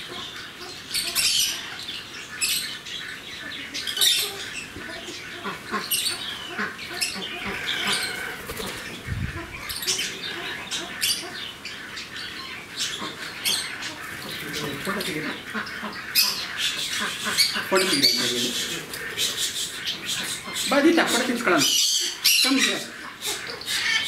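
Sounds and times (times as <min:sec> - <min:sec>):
parrots squawking and screeching: 0:00.0 - 0:02.8, 0:03.7 - 0:24.0
wings flapping: 0:07.4 - 0:09.6.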